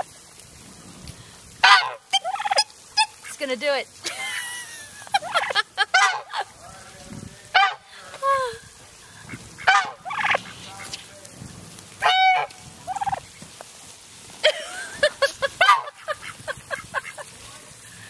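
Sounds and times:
turkey gobbling: 0:01.6 - 0:03.4, 0:04.9 - 0:08.2, 0:09.0 - 0:11.1, 0:11.9 - 0:13.8, 0:14.7 - 0:17.5.

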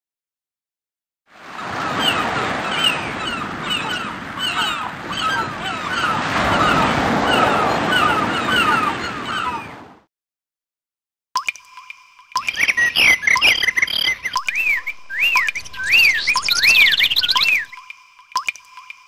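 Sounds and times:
ringtone with rushing noise: 0:11.6 - 0:19.0
gliding chirp-like calls: 0:11.7 - 0:19.0.

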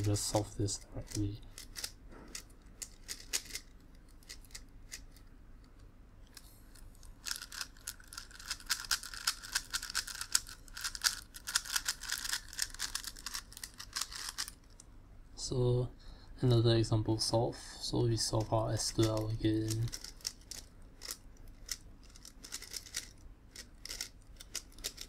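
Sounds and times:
plastic puzzle cube clicking turns: 0:01.0 - 0:14.8, 0:18.9 - 0:25.0.

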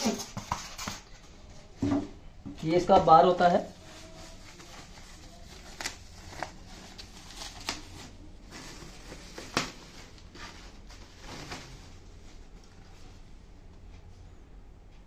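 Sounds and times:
plastic foam wrapping crinkling: 0:03.6 - 0:13.0.

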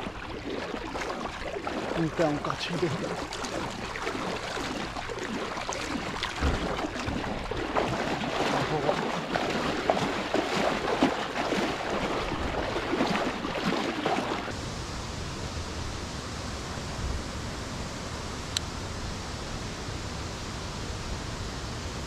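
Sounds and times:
swim fins splashing water: 0:00.0 - 0:14.6
steady hiss: 0:14.6 - 0:22.0.

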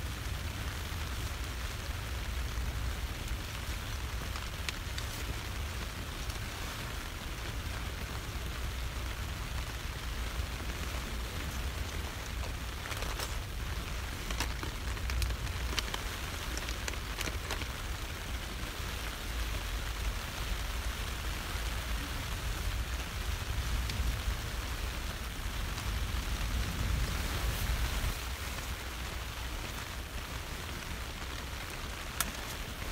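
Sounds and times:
rain falling on a tent: 0:00.0 - 0:32.9
small clicks: 0:32.1 - 0:32.7.

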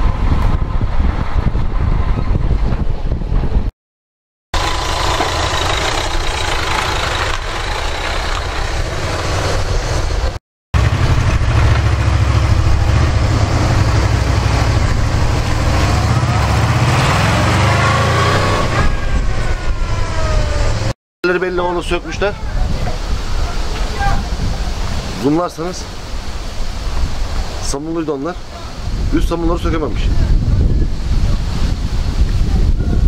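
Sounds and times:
motorcycle engine running: 0:04.6 - 0:16.7
steady rushing noise: 0:04.6 - 0:20.9.

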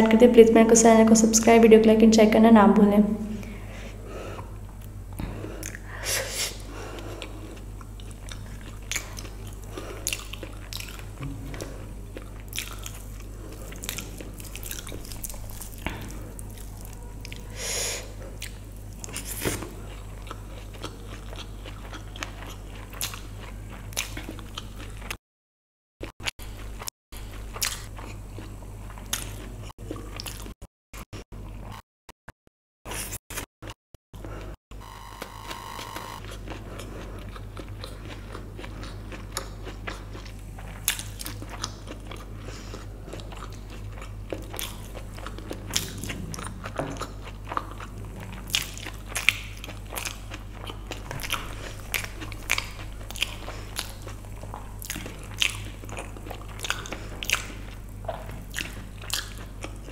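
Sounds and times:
low steady hum: 0:00.0 - 0:25.1, 0:34.2 - 0:59.9
mouth smacks and chewing: 0:07.2 - 0:17.5, 0:36.2 - 0:59.9.

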